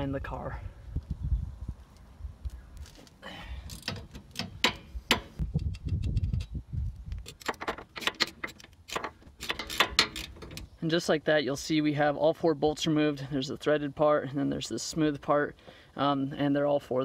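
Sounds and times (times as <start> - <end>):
ratchet wrench clicking: 8.0 - 10.7.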